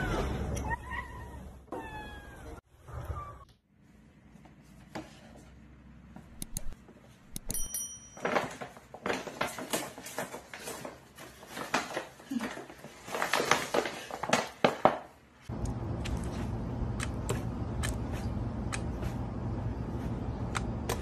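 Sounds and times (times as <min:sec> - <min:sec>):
paper bag crinkling: 0:08.2 - 0:15.1.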